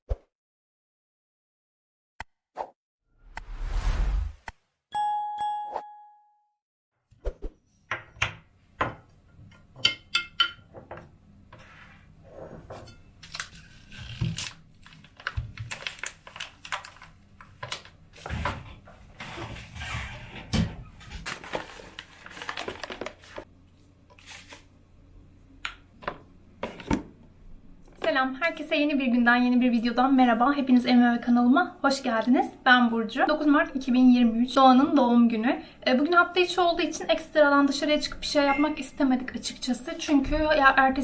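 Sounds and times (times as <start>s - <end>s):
notification bell chime: 5.0s - 6.5s
foil bag crinkling: 13.3s - 18.0s, 21.2s - 23.4s.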